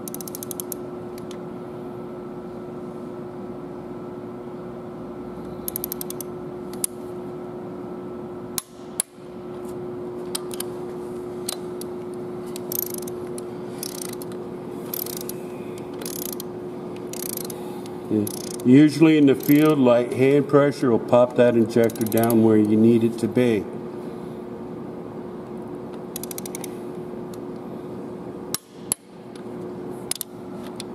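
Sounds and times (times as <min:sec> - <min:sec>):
ratchet wrench clicking: 0:00.0 - 0:00.8, 0:05.6 - 0:06.3, 0:12.6 - 0:13.2, 0:13.8 - 0:14.3, 0:14.9 - 0:15.4, 0:16.0 - 0:16.5, 0:17.1 - 0:17.6, 0:18.2 - 0:18.7, 0:19.4 - 0:19.8, 0:21.8 - 0:22.4, 0:26.2 - 0:26.7
steady hum: 0:00.0 - 0:30.9
sharp metal clicks and knocks: 0:19.4 - 0:19.8, 0:21.8 - 0:22.4.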